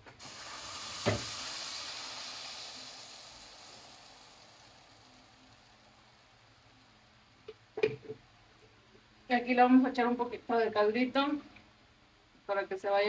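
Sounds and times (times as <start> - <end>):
sauce sizzling in hot oil: 0.0 - 7.9.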